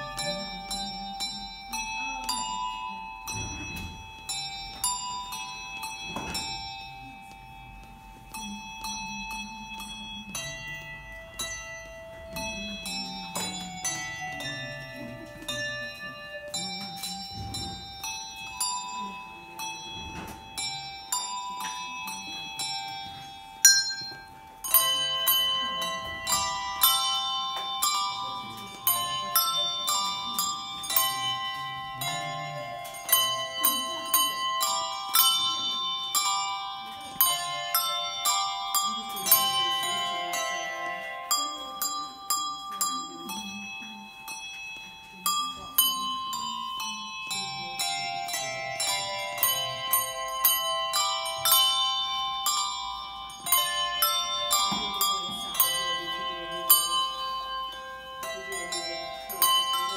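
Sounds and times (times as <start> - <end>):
handbell choir playing: 0.0 - 59.9.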